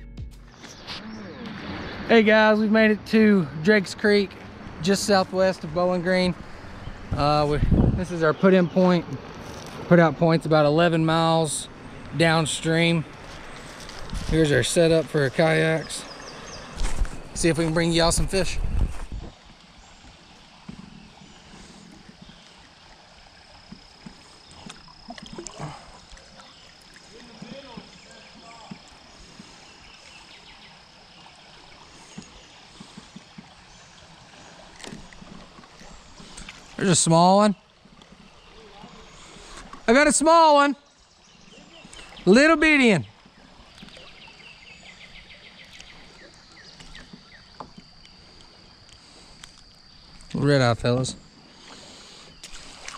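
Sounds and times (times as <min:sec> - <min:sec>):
water lapping around kayak hull: 0:00.6 - 0:52.9
small water splashes and drips: 0:18.9 - 0:40.2, 0:40.8 - 0:50.4, 0:51.2 - 0:52.9.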